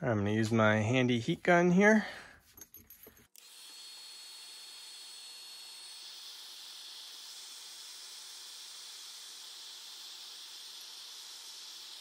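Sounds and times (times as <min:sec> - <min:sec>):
heat gun blowing: 0:03.3 - 0:12.0.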